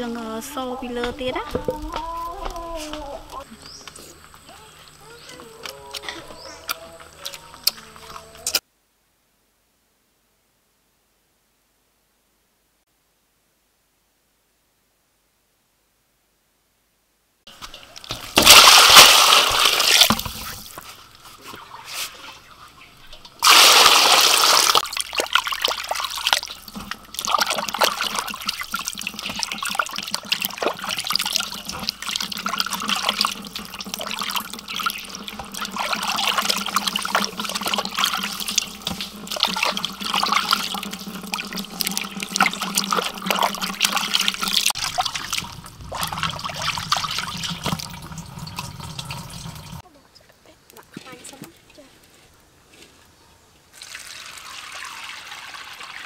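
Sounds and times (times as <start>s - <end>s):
water splashing in basin: 17.5s - 22.4s, 23.2s - 49.8s
water gushing: 17.5s - 22.5s, 23.4s - 49.8s, 53.7s - 56.0s.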